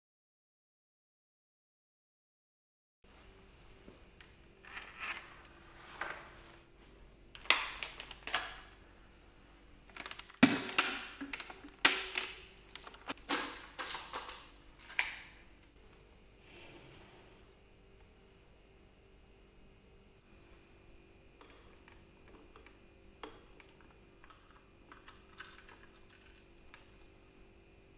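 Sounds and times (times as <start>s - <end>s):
plastic clicks and snaps: 7.4s - 8.8s, 9.9s - 15.3s.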